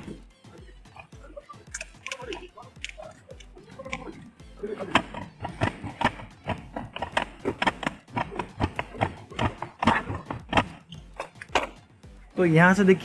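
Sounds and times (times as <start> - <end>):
jack press clicking and knocking: 4.9 - 11.8.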